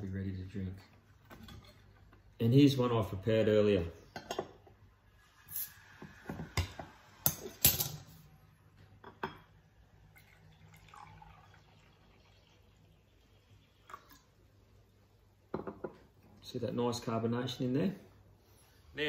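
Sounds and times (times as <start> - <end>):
liquid pouring into glass: 10.0 - 14.4.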